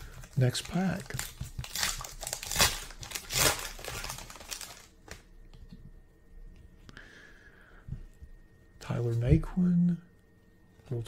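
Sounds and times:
wrapper crinkling and tearing: 0.0 - 5.2.

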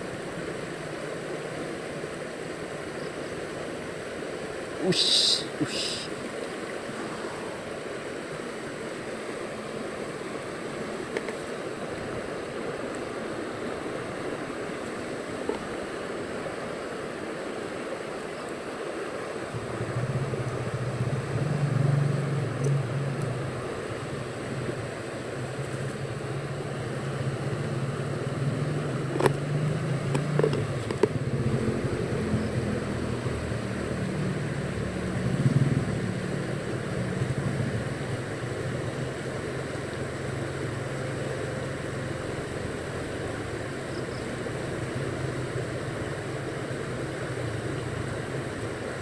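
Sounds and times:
river water flowing: 0.0 - 49.0
low motor drone: 19.4 - 48.4.

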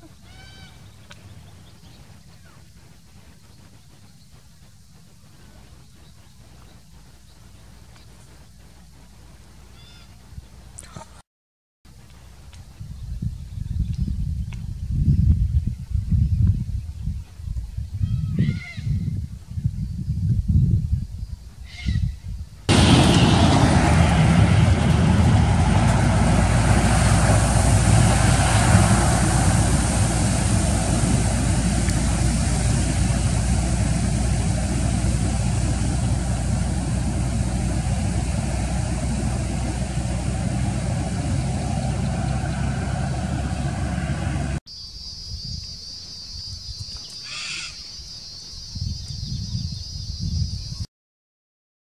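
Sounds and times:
diesel truck engine running: 22.7 - 44.6
tyres splashing through water: 22.8 - 44.6.

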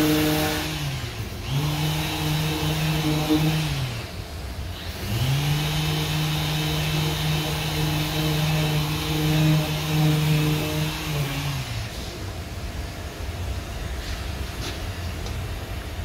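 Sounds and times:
orbital sander running: 0.0 - 12.2.

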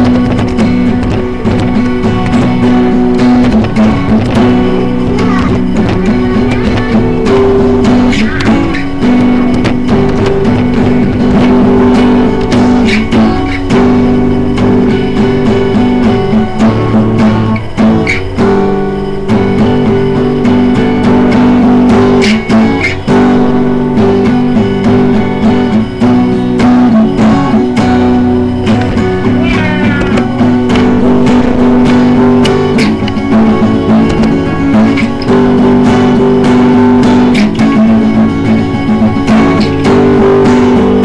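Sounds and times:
guitar strumming chords: 0.0 - 41.0.

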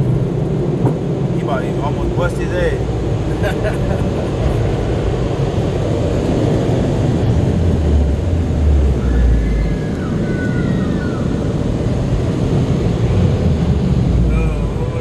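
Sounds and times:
car wash dryer blowers: 0.0 - 15.0
faint gliding squeals: 8.8 - 11.5, 14.2 - 15.0.

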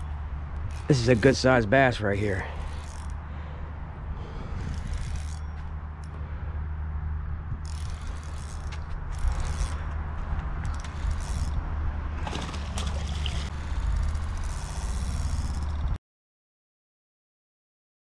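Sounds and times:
spinning reel winding: 0.0 - 3.2, 4.6 - 6.1, 7.6 - 9.9, 10.6 - 11.6, 12.8 - 16.0
steady low rumble: 0.0 - 16.0.

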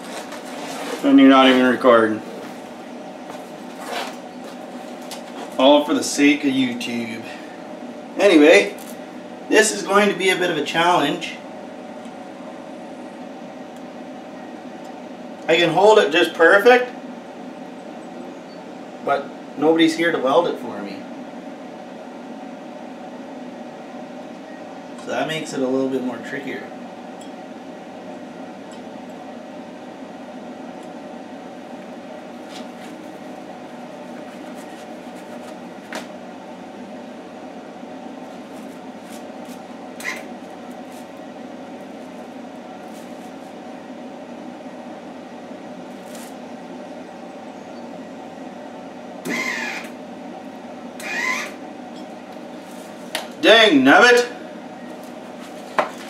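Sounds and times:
steady hum: 0.0 - 56.0.

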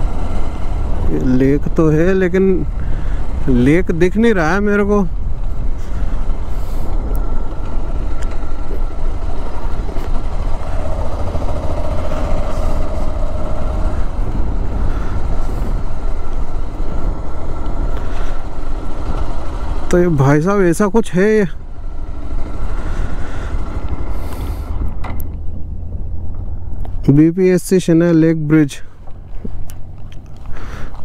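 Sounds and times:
wind buffeting microphone: 0.0 - 19.9
motorcycle engine running: 0.0 - 27.3, 28.2 - 31.0.

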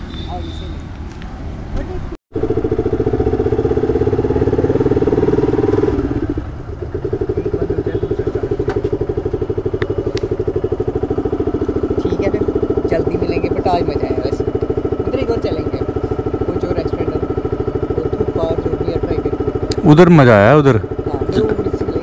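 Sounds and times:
motorcycle engine running: 2.3 - 22.0.

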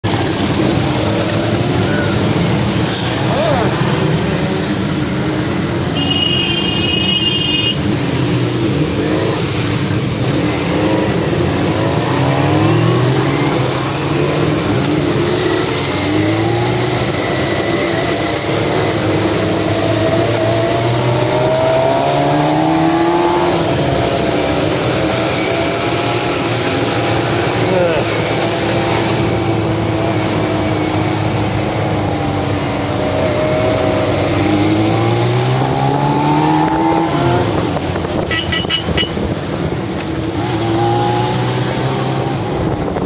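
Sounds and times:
motorcycle engines revving: 0.0 - 43.0
horn sounding: 5.9 - 7.9, 38.2 - 39.2.

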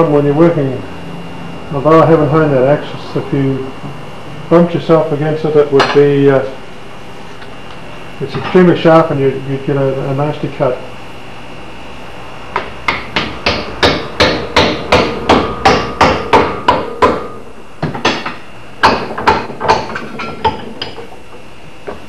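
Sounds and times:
hammer striking wooden wedge: 12.5 - 21.0.

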